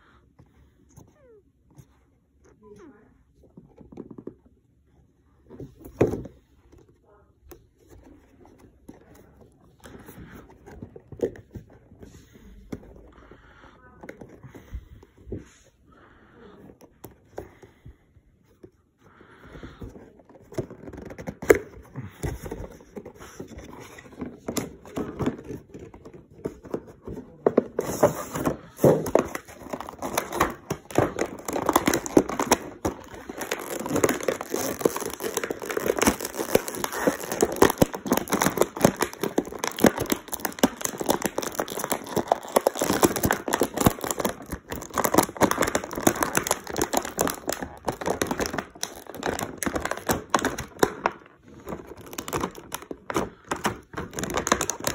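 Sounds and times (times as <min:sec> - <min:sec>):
plastic bag crinkling: 0:20.5 - 0:54.9.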